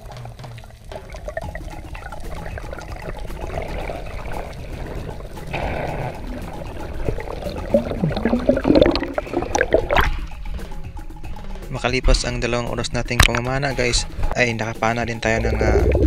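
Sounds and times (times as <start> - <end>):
water gurgling: 0.0 - 10.4, 15.2 - 16.0
water rushing and bubbling: 0.0 - 10.6, 15.2 - 16.0.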